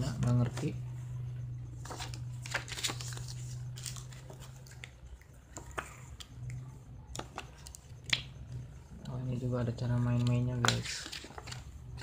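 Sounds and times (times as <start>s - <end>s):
low steady hum: 0.0s - 12.0s
paper rustling and crinkling: 1.8s - 5.0s, 10.0s - 12.0s.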